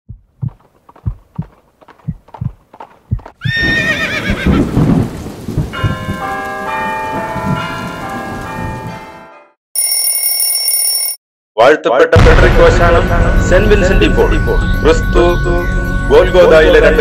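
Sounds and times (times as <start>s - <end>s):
horse hooves clopping: 0.1s - 7.9s
horse whinny: 3.4s - 4.7s
chiming bell tones: 9.8s - 11.2s.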